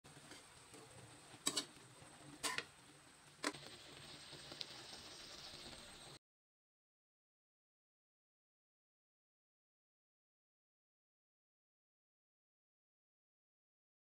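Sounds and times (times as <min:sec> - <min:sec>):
sauce sizzling in a wok: 0:00.1 - 0:06.2.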